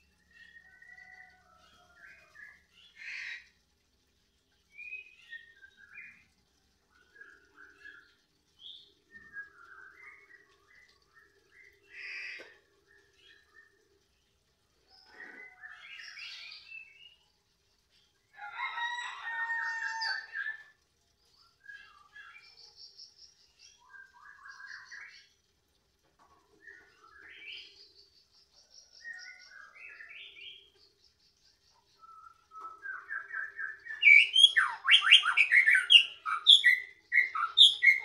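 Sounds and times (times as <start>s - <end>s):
bird singing whistled phrases: 32.1s - 38.0s.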